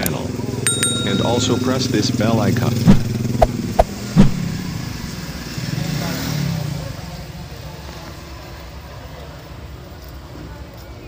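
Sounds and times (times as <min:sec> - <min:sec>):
street background noise: 0:00.0 - 0:11.0
sharp knock: 0:02.9 - 0:05.1.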